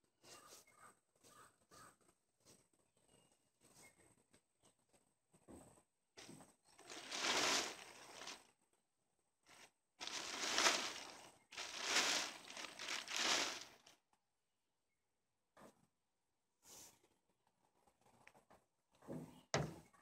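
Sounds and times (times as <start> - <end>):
hay bales rustling and crunching: 6.8 - 8.4, 10.0 - 13.9.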